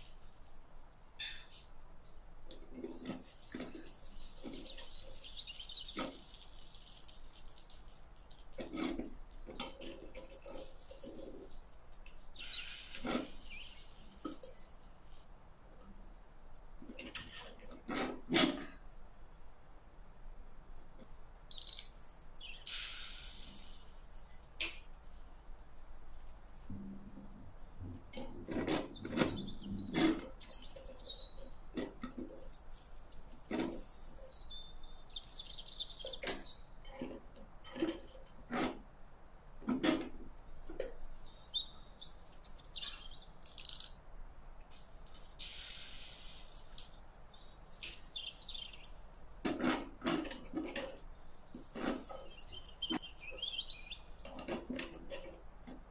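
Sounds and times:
birds chirping: 0:01.1 - 0:07.7, 0:08.5 - 0:14.8, 0:21.3 - 0:24.8, 0:26.5 - 0:38.6, 0:40.4 - 0:44.5, 0:46.3 - 0:49.2, 0:50.8 - 0:55.3.

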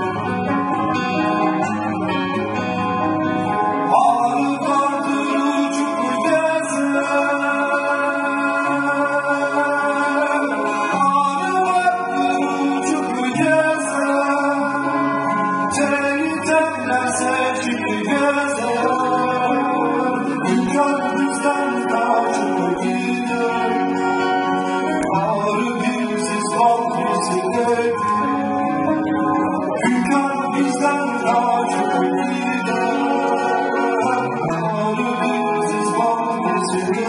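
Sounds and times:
acoustic guitar: 0:00.0 - 0:37.0
man singing: 0:03.6 - 0:37.0.

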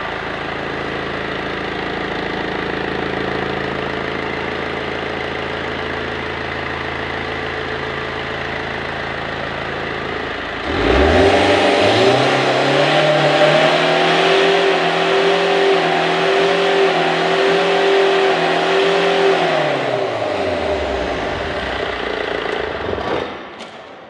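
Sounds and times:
diesel engine revving: 0:08.7 - 0:23.8.

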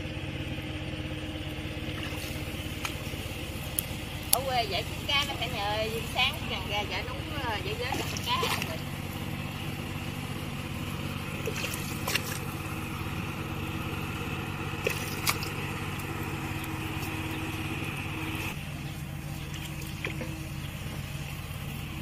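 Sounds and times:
outboard engine running: 0:00.0 - 0:22.0.

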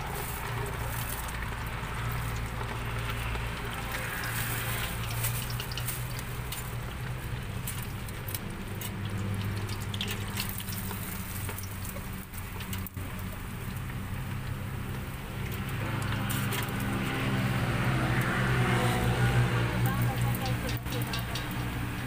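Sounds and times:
oil sizzling: 0:00.0 - 0:22.0
metal tongs clicking on pot: 0:19.8 - 0:22.0.

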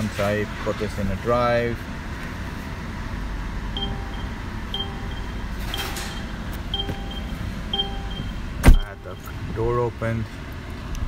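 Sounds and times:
low steady rumble: 0:00.4 - 0:11.0
car warning chime: 0:03.8 - 0:09.6.

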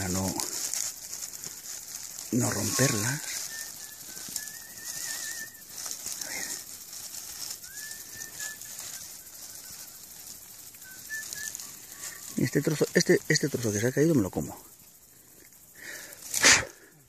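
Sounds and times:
steady high hiss: 0:00.0 - 0:17.0
small bird whistling and trilling: 0:02.4 - 0:06.6, 0:07.3 - 0:12.6.

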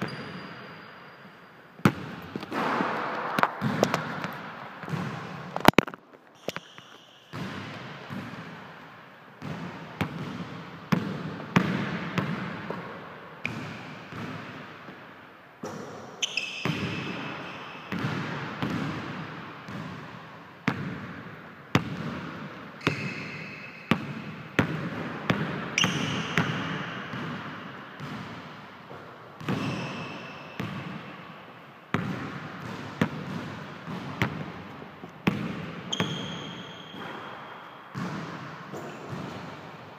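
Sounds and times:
sneakers squeaking on floor: 0:00.0 - 0:05.6, 0:06.3 - 0:08.4, 0:15.6 - 0:18.8, 0:22.8 - 0:24.8, 0:25.8 - 0:28.2, 0:29.4 - 0:31.2, 0:32.0 - 0:39.8
basketball bouncing on wooden floor: 0:01.8 - 0:05.8, 0:07.3 - 0:08.5, 0:23.9 - 0:28.4, 0:31.9 - 0:34.6, 0:35.2 - 0:39.6.

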